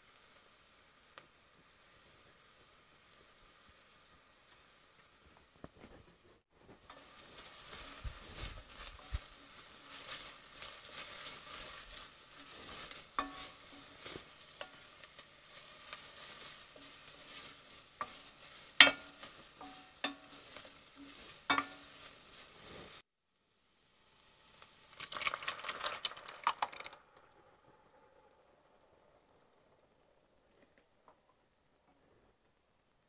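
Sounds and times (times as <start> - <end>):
onion and garlic sizzling: 0.0 - 32.2
wooden spoon knocking on pot: 18.1 - 20.4.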